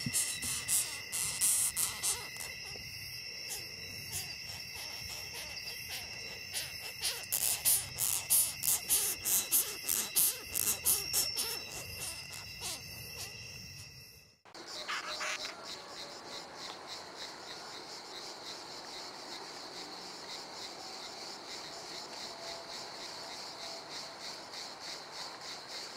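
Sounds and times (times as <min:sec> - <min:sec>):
beetle squeaking: 0:00.0 - 0:16.1
high insect trill: 0:00.0 - 0:25.9.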